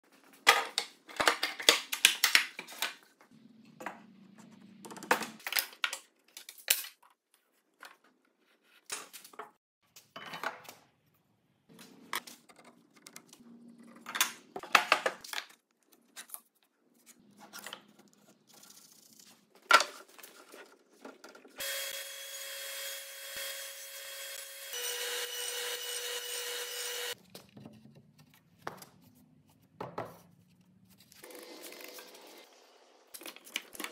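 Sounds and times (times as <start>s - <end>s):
power tool running: 21.6s - 27.2s.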